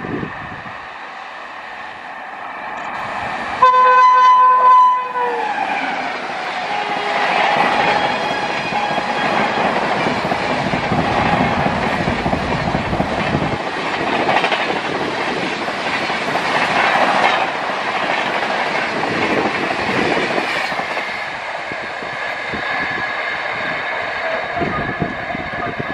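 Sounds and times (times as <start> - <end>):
train wheels rushing on rails: 0.0 - 25.9
clickety-clack over rail joints: 5.7 - 25.9.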